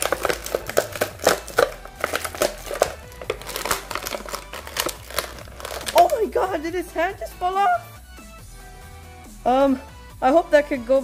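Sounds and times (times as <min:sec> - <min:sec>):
plastic packaging crinkling: 0:00.0 - 0:06.5.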